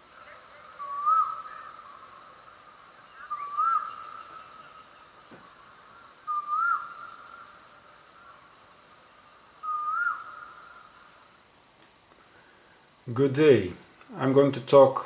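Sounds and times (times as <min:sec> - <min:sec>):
whistle-like call: 0:00.8 - 0:01.8, 0:06.3 - 0:07.0, 0:09.6 - 0:10.3.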